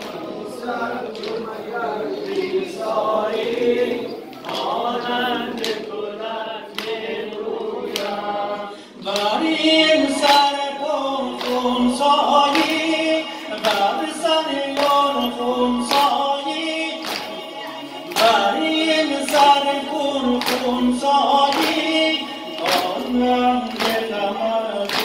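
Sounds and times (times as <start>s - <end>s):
man singing a mourning chant: 8.1s - 25.0s.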